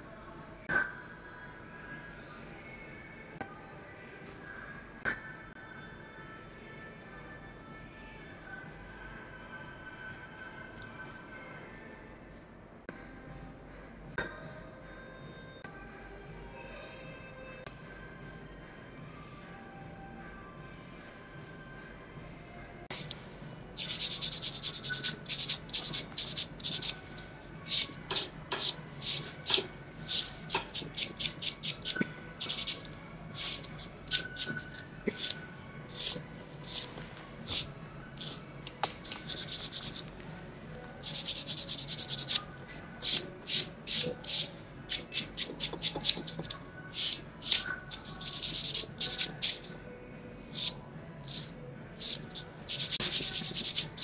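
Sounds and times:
nail file scraping fingernails: 23.8s - 36.9s, 37.5s - 38.4s, 39.0s - 40.0s, 41.0s - 49.8s, 50.6s - 54.0s.

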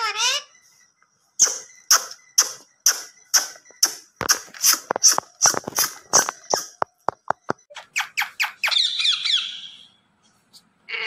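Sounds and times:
parrot squawking: 0.0s - 0.5s, 7.8s - 10.0s.

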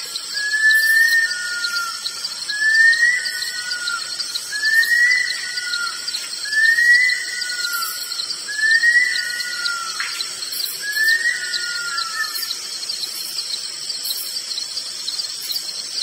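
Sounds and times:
bird wailing whistle call: 0.2s - 12.6s.

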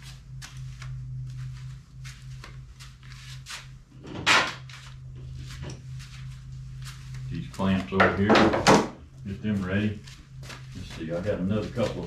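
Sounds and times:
steady low hum: 0.0s - 12.0s
loud knock: 8.3s - 9.0s.

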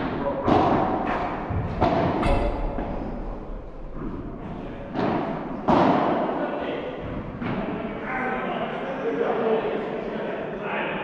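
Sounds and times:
racket hitting ball: 0.0s - 6.4s
echoing indoor sports hall noise: 0.0s - 11.0s.

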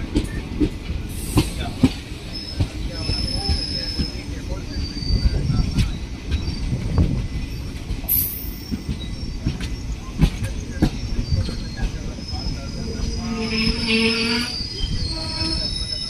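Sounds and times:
train rumbling on rails: 0.0s - 16.0s
high wheel squeal: 2.2s - 6.7s, 10.6s - 16.0s.

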